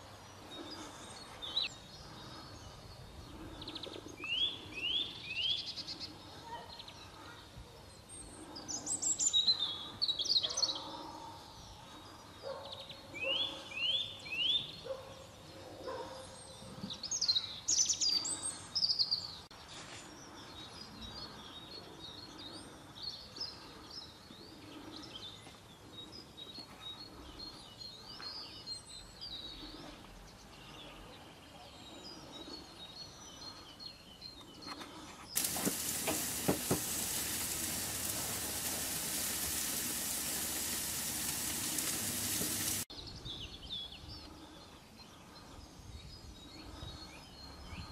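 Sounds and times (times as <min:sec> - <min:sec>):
small birds chirping: 0:00.0 - 0:47.9
meat sizzling on a grill: 0:35.4 - 0:42.9.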